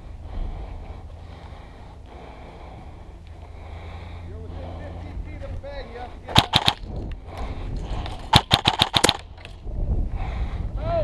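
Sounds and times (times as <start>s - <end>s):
airsoft rifle firing bursts: 6.3s - 6.9s, 8.3s - 9.3s.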